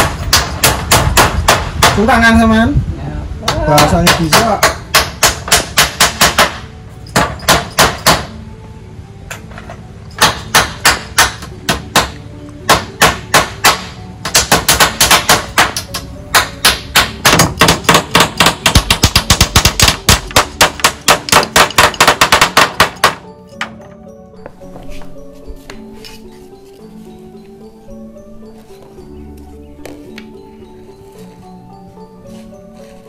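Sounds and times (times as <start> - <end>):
hammers nailing wood: 0.0 - 2.2, 3.5 - 8.4, 10.2 - 23.8.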